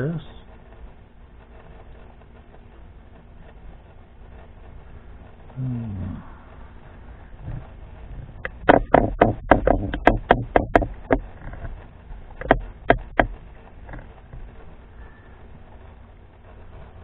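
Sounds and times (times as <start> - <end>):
sharp clicks: 8.4 - 14.1.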